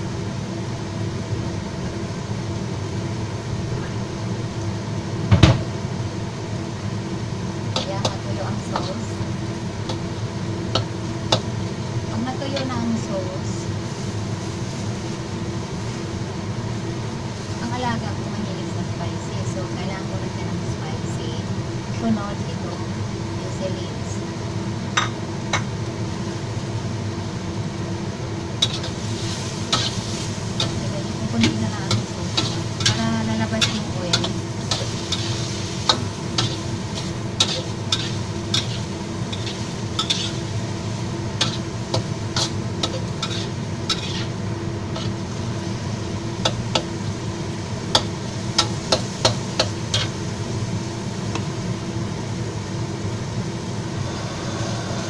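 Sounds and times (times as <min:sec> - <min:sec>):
food sizzling in a pan: 0:00.0 - 0:55.0
metal spatula scraping a wok: 0:28.6 - 0:40.5, 0:41.4 - 0:45.2, 0:47.9 - 0:50.2.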